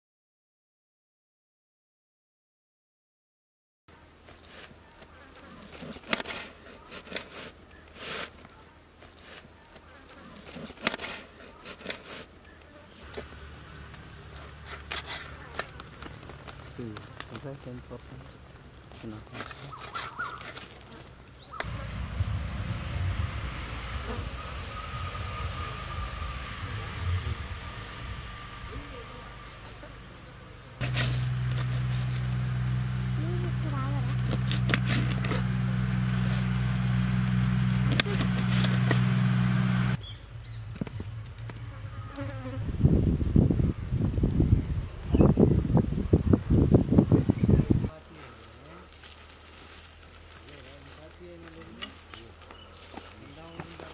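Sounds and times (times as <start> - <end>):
low steady hum: 21.4 - 47.9.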